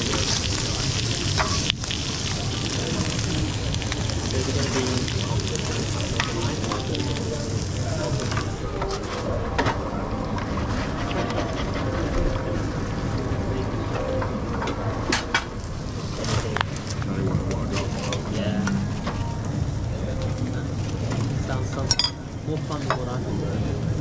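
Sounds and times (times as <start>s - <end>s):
eggs frying in oil: 0.0s - 8.7s
food sizzling on a griddle: 0.0s - 8.7s.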